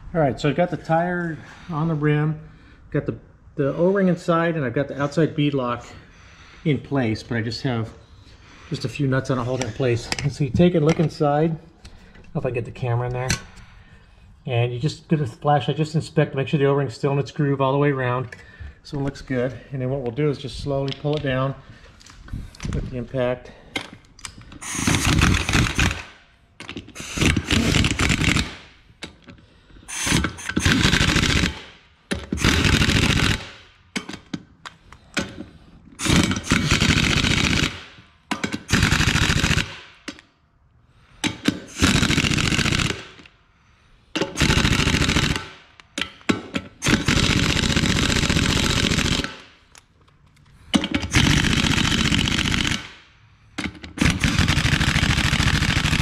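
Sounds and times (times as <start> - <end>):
pneumatic impact wrench hammering: 23.8 - 29.2, 29.9 - 40.2, 41.2 - 43.3, 44.1 - 49.6, 50.7 - 53.0, 53.6 - 56.0.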